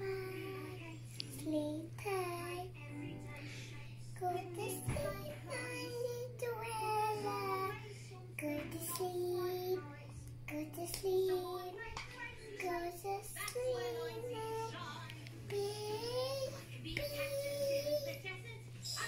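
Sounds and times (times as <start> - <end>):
child singing quietly: 0.0 - 19.0.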